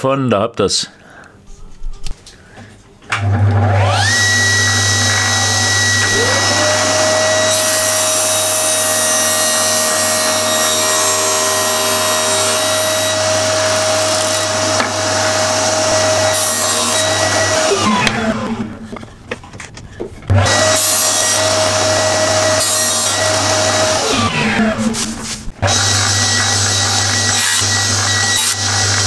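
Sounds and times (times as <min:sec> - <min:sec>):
shop vacuum running: 0:03.1 - 0:19.1, 0:20.3 - 0:29.0
saw cutting plywood: 0:03.2 - 0:19.0, 0:20.3 - 0:29.0
table saw whine: 0:03.2 - 0:19.0, 0:20.3 - 0:29.0.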